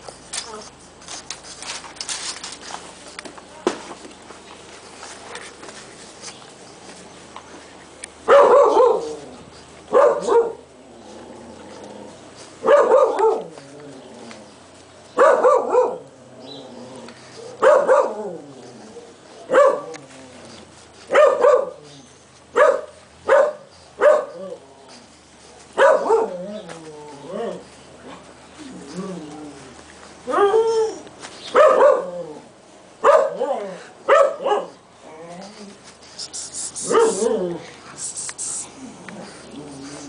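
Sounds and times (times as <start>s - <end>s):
puppy barking: 8.3s - 9.2s, 9.9s - 10.6s, 12.6s - 13.5s, 15.2s - 16.1s, 17.4s - 18.2s, 19.5s - 20.0s, 21.1s - 21.8s, 22.6s - 24.4s, 25.8s - 26.5s, 31.5s - 32.2s, 33.0s - 34.8s, 36.8s - 37.6s.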